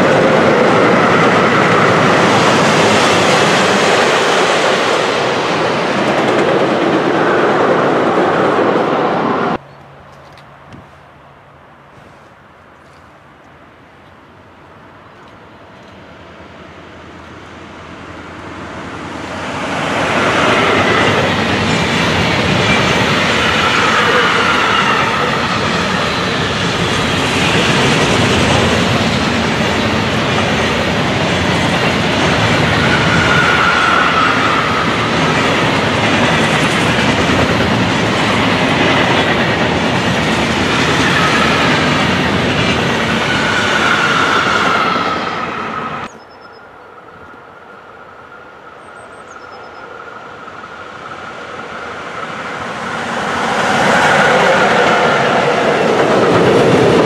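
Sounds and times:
train wheels rolling on rails: 0.0s - 11.1s, 14.8s - 46.2s, 47.0s - 57.0s
high wheel squeal: 20.4s - 28.0s, 32.2s - 35.6s, 40.7s - 46.6s.

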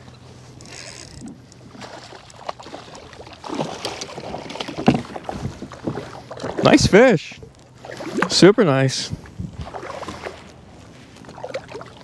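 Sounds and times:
water splashing against kayak: 0.0s - 8.6s, 9.2s - 12.0s
sharp knocks on kayak: 4.5s - 5.2s.

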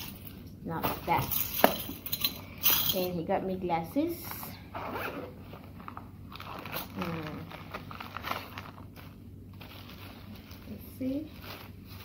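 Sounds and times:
pouch rustling and crinkling: 4.8s - 12.0s.

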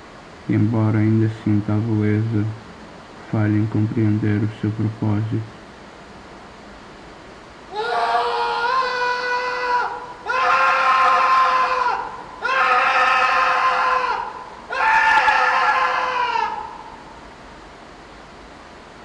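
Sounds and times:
man screaming: 7.7s - 17.0s.

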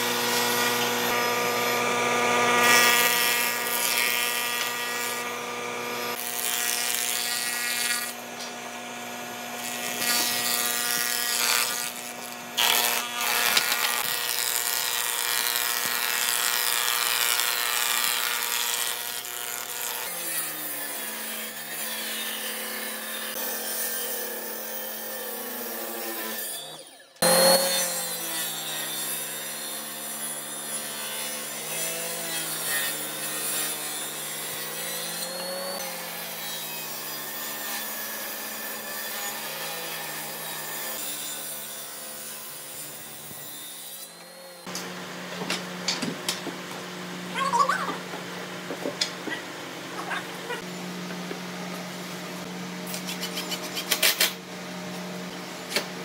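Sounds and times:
thickness planer motor humming: 0.0s - 20.2s, 25.4s - 28.4s
table saw cutting: 0.0s - 56.0s.

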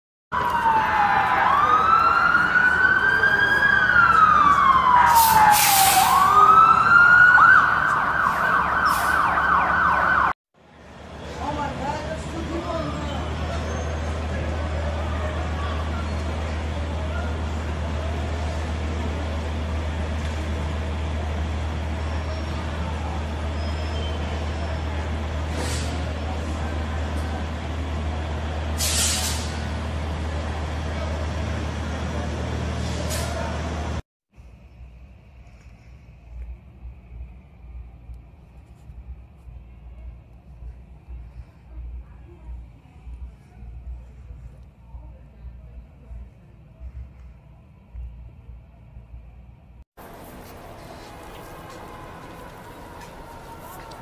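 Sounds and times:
siren steady high tone: 0.3s - 10.4s
siren wailing: 0.3s - 10.4s, 51.1s - 54.0s
street traffic: 0.3s - 54.0s
siren fast yelp: 0.4s - 10.4s
bus engine idling: 50.0s - 54.0s.

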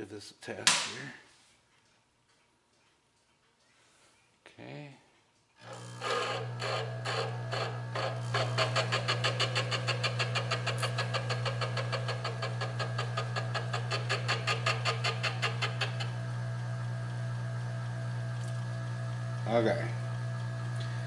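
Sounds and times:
grinding scraping ticks: 5.6s - 16.7s
lathe humming: 5.6s - 21.0s.

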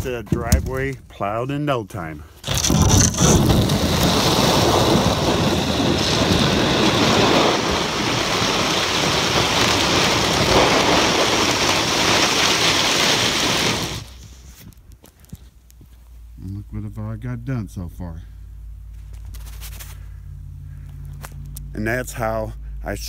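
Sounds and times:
plywood scraping on concrete: 2.4s - 14.8s.

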